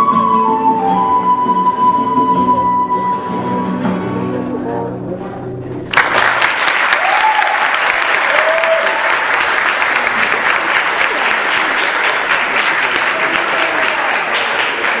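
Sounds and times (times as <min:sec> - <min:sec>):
audience clapping: 0:05.9 - 0:15.0
short cheers: 0:06.8 - 0:09.5.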